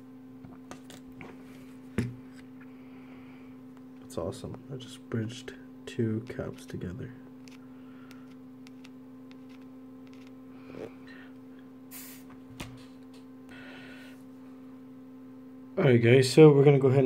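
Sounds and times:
electrical mains hum: 0.0s - 17.0s
short hisses: 11.9s - 12.3s.

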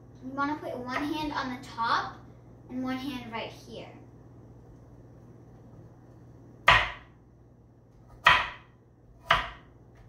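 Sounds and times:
knife chopping carrot on board: 6.6s - 7.2s, 8.0s - 10.0s.

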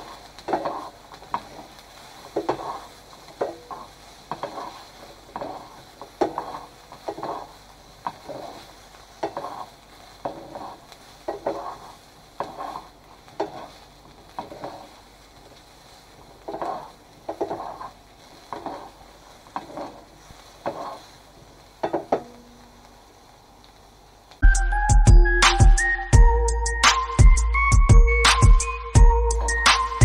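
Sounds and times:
vegetables sizzling in a frying pan: 0.0s - 24.5s
tongs scraping a pan: 0.5s - 13.7s, 16.5s - 19.0s, 19.6s - 21.1s.

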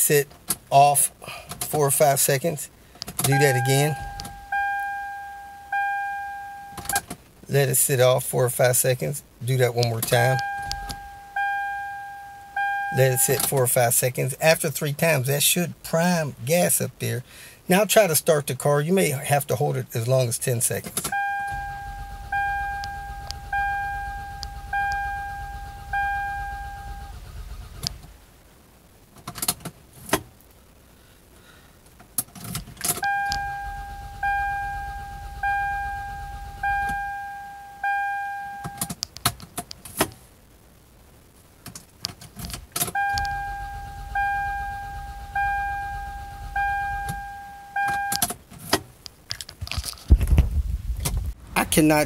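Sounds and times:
car engine cranking: 3.0s - 7.2s, 9.9s - 13.5s, 21.0s - 28.2s, 32.3s - 39.0s, 42.2s - 48.4s
dashboard chime dinging: 3.3s - 7.0s, 10.2s - 13.4s, 21.1s - 27.1s, 33.0s - 38.9s, 43.0s - 48.2s.

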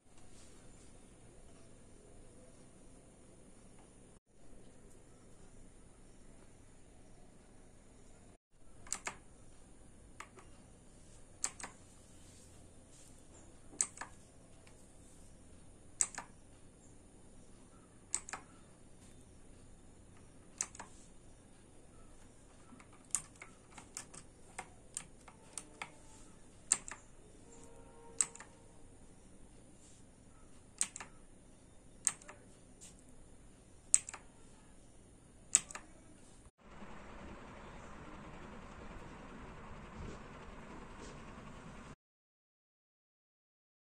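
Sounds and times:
mechanical keyboard key clicks: 8.8s - 9.2s, 11.4s - 11.8s, 16.0s - 16.3s, 18.1s - 18.5s, 20.6s - 20.9s, 22.8s - 25.9s, 26.7s - 27.0s, 28.2s - 28.5s, 30.8s - 31.2s, 32.0s - 32.4s, 33.9s - 34.2s, 35.5s - 35.9s.

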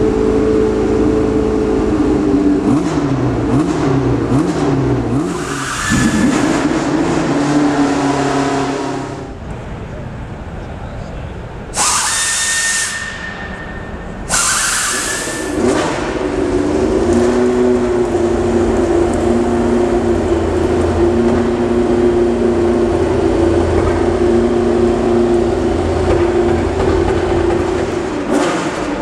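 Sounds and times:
hissing bursts with whistle: 5.4s - 6.5s, 11.7s - 15.6s.

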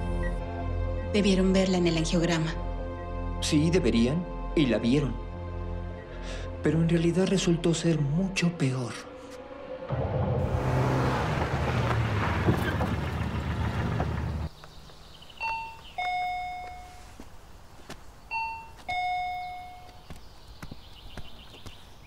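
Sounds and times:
car running: 9.7s - 15.0s
two-tone doorbell chime: 15.4s - 17.1s, 18.3s - 20.0s.

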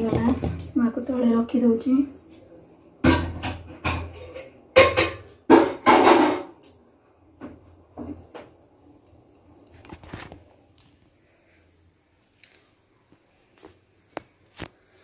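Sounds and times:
pots and dishes clattering: 3.0s - 6.6s.

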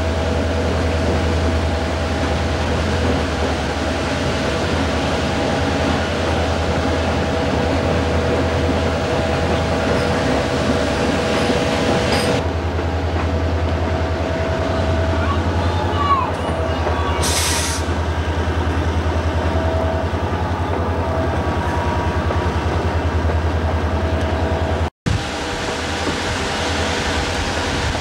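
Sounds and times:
train wheels rumbling on rails: 0.0s - 28.0s
rushing hiss: 17.2s - 18.0s.

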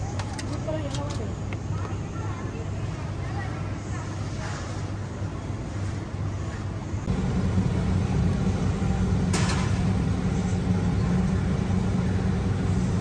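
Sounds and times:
vehicle engine running: 7.1s - 13.0s.

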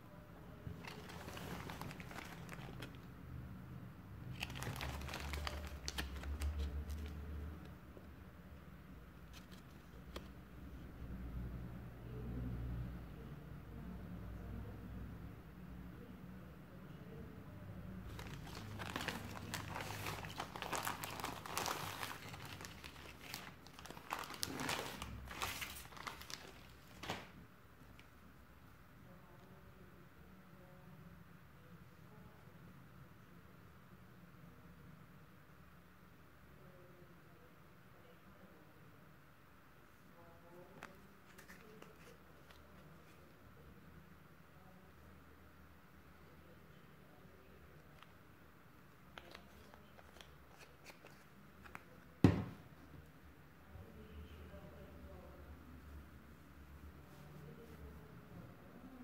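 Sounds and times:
plastic bag crinkling: 0.8s - 3.0s, 4.3s - 7.1s, 18.1s - 27.3s
sharp plastic crackle: 0.8s - 3.0s, 4.3s - 7.1s, 18.1s - 27.3s.

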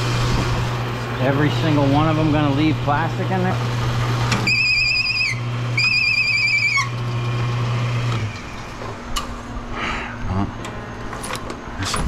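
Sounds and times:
electric motor humming: 0.0s - 9.1s
warbling whistle-like tones: 4.5s - 6.9s.

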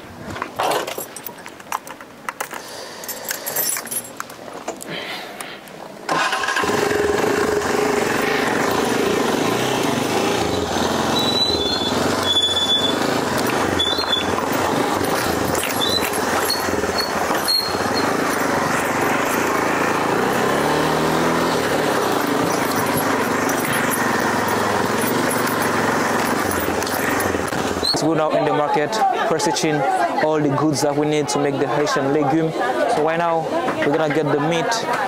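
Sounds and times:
street traffic: 0.0s - 35.0s
motorcycle engine: 6.1s - 28.0s.

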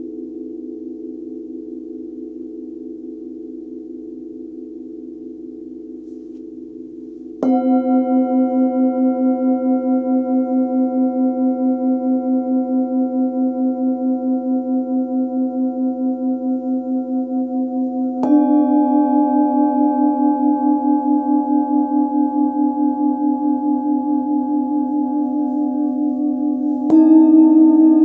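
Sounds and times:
singing bowl ringing: 6.8s - 28.0s.

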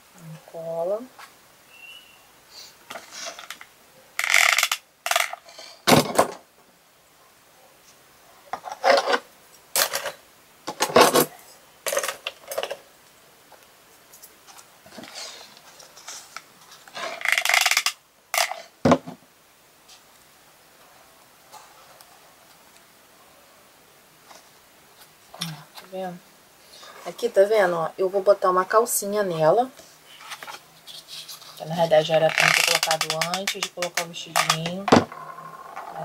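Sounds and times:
hands rustling and scraping: 30.1s - 36.0s.

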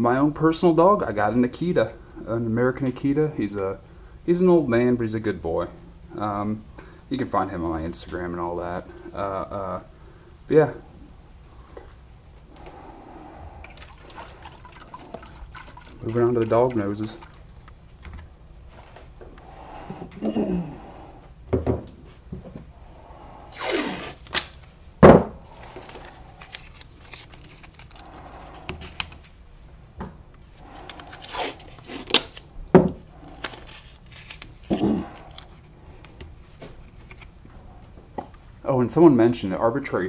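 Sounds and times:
knocks on wooden workbench: 21.5s - 22.4s
masking tape rustling and tearing: 23.5s - 24.8s, 25.4s - 29.4s, 30.4s - 32.5s, 33.1s - 37.4s.

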